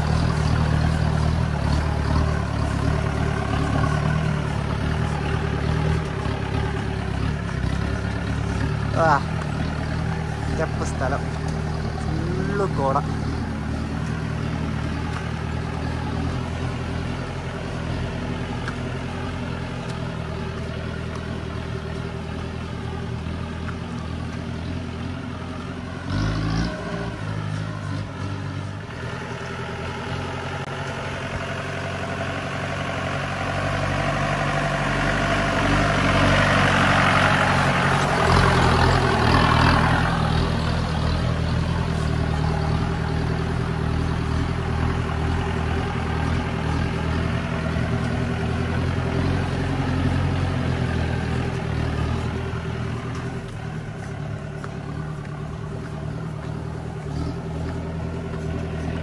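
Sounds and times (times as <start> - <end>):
diesel engine driving off-road: 0.0 - 59.0.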